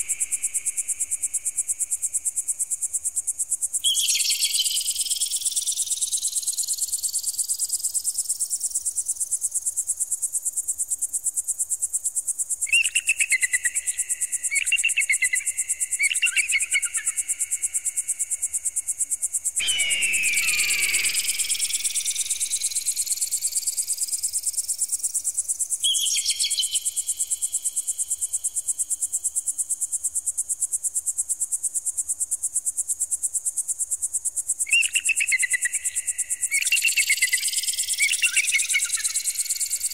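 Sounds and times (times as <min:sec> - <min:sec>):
warbling electronic chirps: 0:19.6 - 0:23.2.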